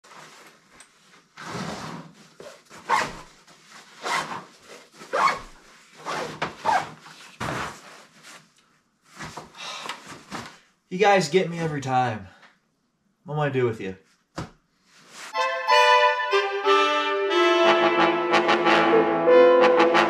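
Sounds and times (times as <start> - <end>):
rucksack fabric rustling: 0.1 - 10.7.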